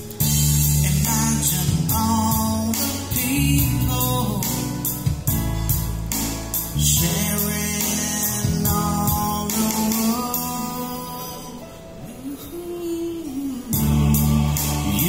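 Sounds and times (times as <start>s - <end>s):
programmed drum beat: 0.0s - 10.5s, 13.8s - 15.0s
electronic keyboard: 0.0s - 15.0s
man singing into microphone: 0.7s - 4.9s, 6.8s - 15.0s.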